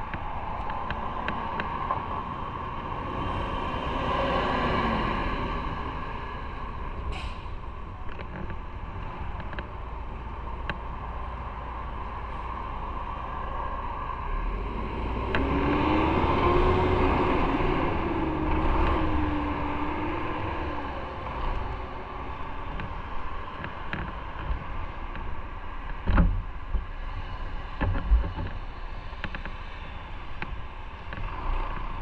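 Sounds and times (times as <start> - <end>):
rushing wind: 0.0 - 32.0.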